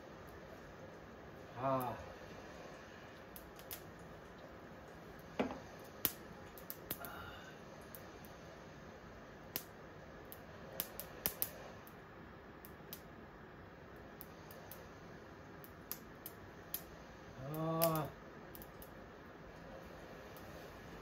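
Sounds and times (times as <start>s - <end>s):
faint steady hiss: 0.0s - 21.0s
small clicks and pops: 3.2s - 7.2s, 9.5s - 12.0s, 12.6s - 13.1s, 15.6s - 16.9s, 17.8s - 19.0s.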